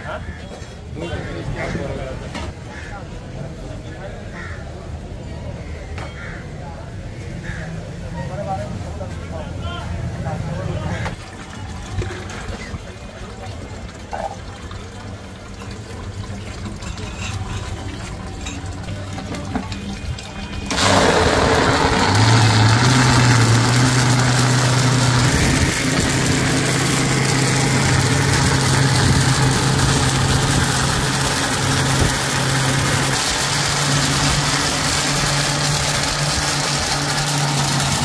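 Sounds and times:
blender motor running: 20.6 - 38.0.

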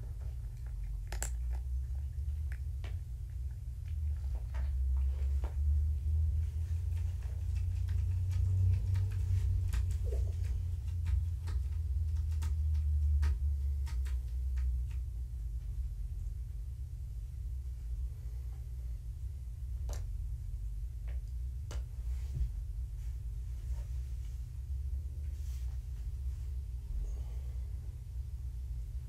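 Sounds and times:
kitten paws clicking: 0.0 - 5.8, 6.4 - 15.3
steady low rumble: 0.0 - 29.0.

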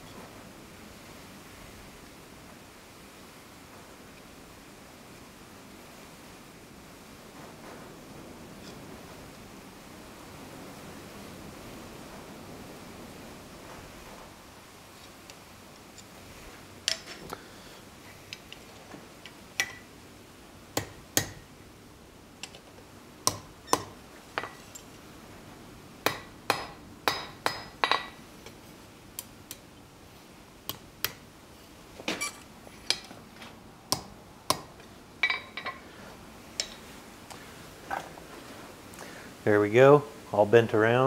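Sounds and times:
hammer tapping on anvil: 20.8 - 21.4, 23.3 - 24.6, 26.1 - 28.2, 33.9 - 35.8.

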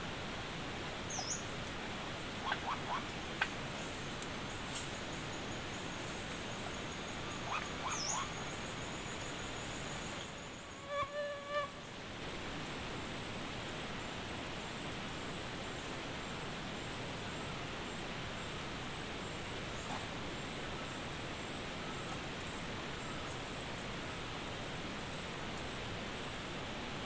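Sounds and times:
outdoor hiss: 0.0 - 27.0
high insect-like whine: 1.1 - 12.5.

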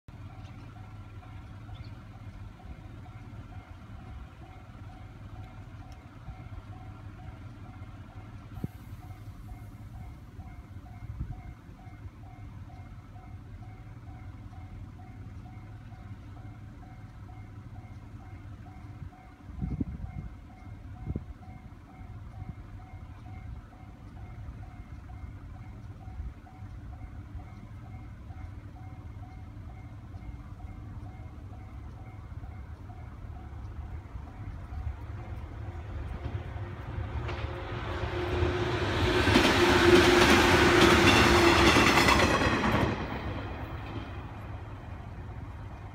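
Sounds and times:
level-crossing alarm dinging: 0.1 - 35.9
train passing: 0.1 - 45.9
wheels clicking over rail joints: 0.1 - 45.9.

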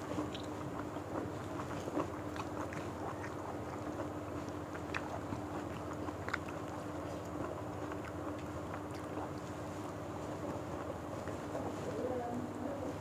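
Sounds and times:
chewing and smacking: 0.0 - 12.7
steady low hum: 0.0 - 13.0.

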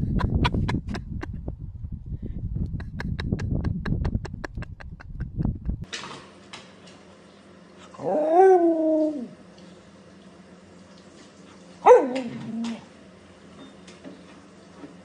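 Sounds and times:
dog howling: 8.0 - 9.4, 11.8 - 12.9.

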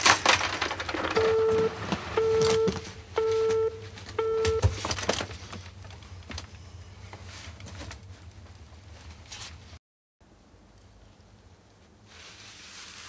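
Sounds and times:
telephone busy tone: 1.2 - 4.7.

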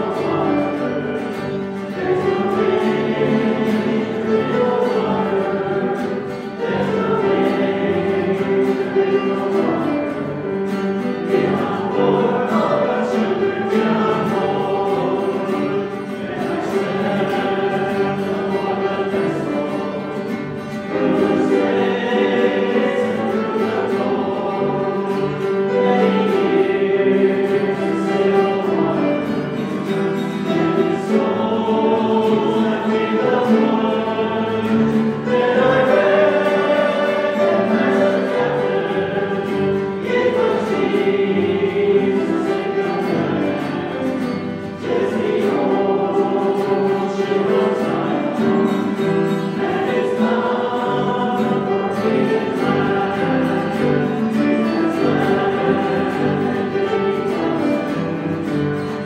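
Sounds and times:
group singing a hymn: 0.0 - 59.0.

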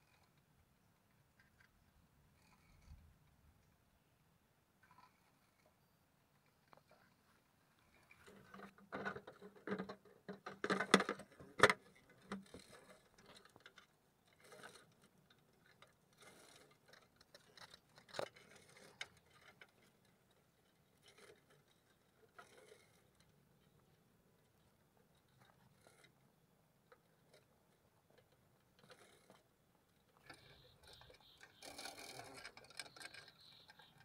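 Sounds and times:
plastic box clicking and scraping: 8.0 - 20.1.

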